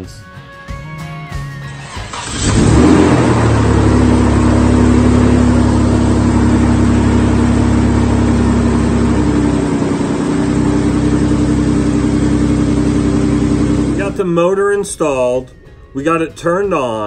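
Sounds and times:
car engine running: 1.7 - 14.2
man speaking: 14.0 - 17.0.

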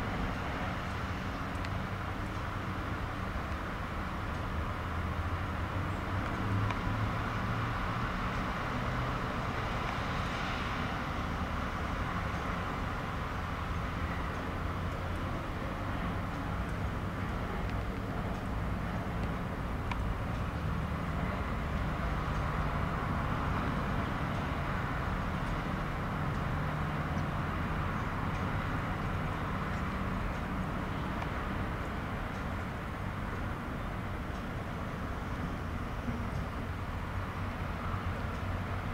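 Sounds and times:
outdoor background noise: 0.0 - 38.9.

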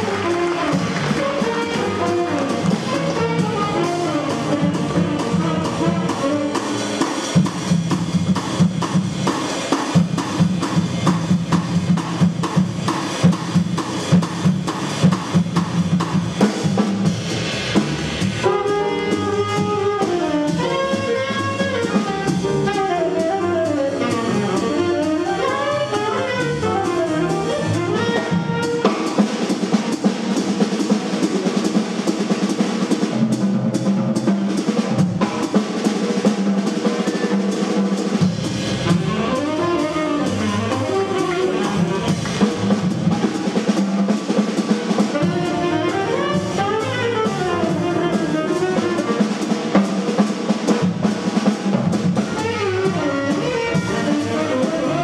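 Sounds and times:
saxophone line: 0.0 - 7.0, 18.4 - 29.0, 38.8 - 42.4, 45.1 - 49.2, 52.3 - 55.0
drum kit: 0.0 - 55.0
live jazz band playing blues: 0.0 - 55.0.

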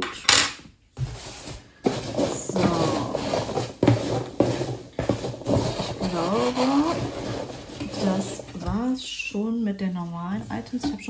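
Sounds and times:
woman speaking: 2.2 - 3.5, 6.0 - 7.1, 7.9 - 11.0.

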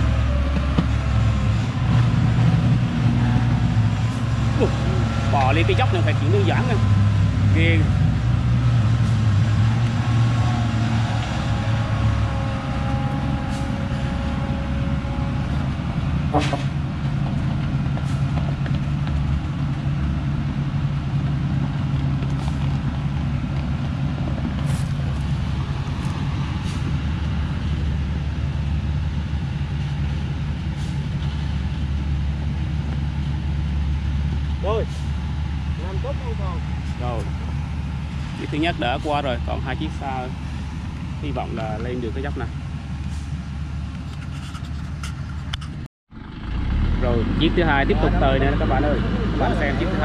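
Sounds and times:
truck engine labouring: 0.0 - 50.0.

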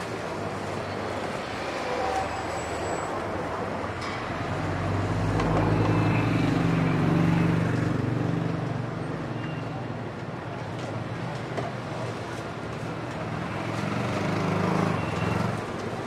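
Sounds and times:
street traffic: 0.0 - 16.0.

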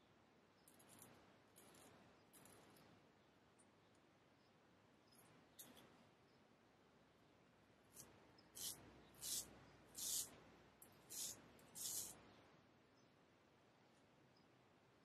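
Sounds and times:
straight razor scraping stubble: 8.0 - 10.3, 11.1 - 12.2.

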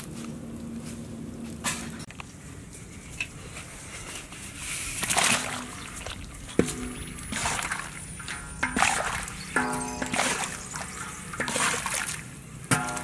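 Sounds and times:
water splashing and sloshing: 4.1 - 13.0
metal wok knocking on pot: 6.5 - 11.7, 12.7 - 13.0.

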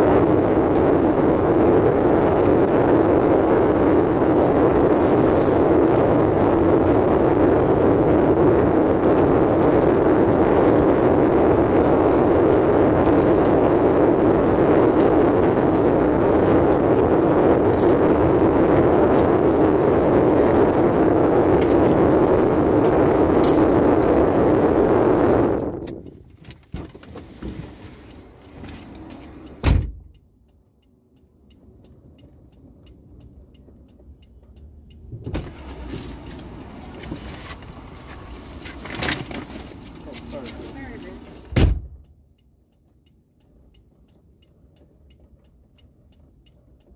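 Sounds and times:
rushing noise inside car: 0.0 - 46.9
car door shutting: 28.6 - 30.1, 35.2 - 36.2, 41.4 - 42.0.

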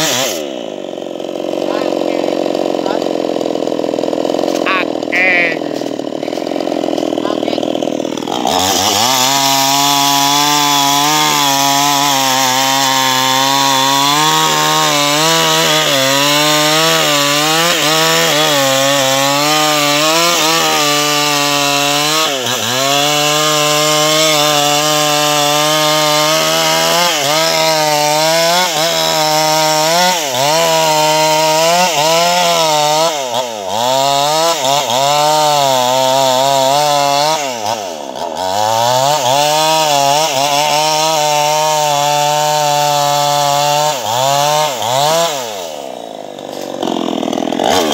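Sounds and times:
chainsaw cutting log: 0.0 - 47.9.

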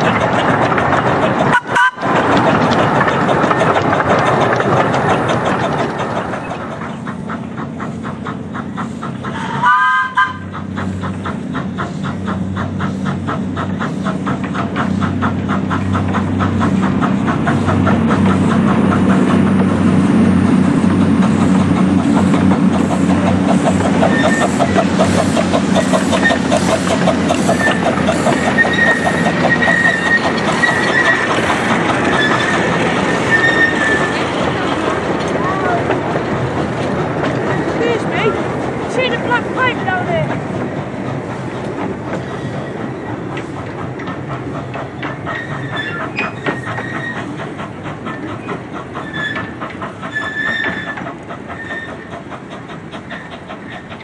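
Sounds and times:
steam train rhythmic chugging: 0.0 - 54.0
steam train whistle: 1.5 - 2.0, 9.4 - 10.5
thin high wheel squeal: 24.0 - 24.7, 25.8 - 31.4, 32.0 - 34.3, 45.2 - 47.3, 49.0 - 52.1.

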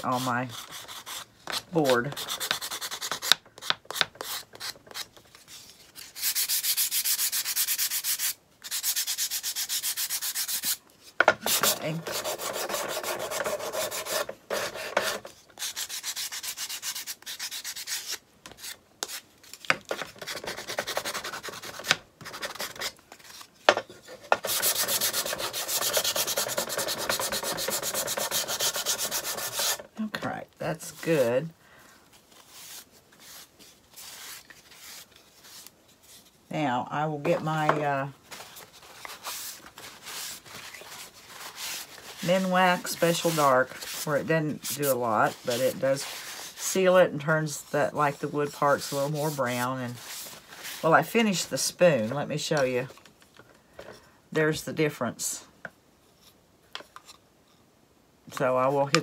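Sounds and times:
sponge sanding wood: 0.0 - 3.3, 6.2 - 10.8, 11.4 - 19.2, 20.1 - 22.9, 24.3 - 29.9, 32.4 - 35.6, 39.0 - 50.9.

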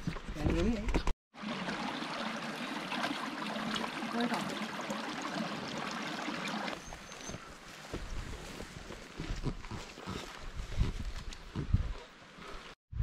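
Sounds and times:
stream trickling over rocks: 1.4 - 9.3
footsteps through long grass: 6.9 - 12.1.

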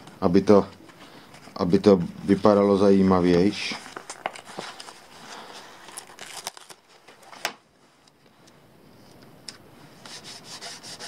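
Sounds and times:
paper and plastic crinkling: 3.5 - 7.6.

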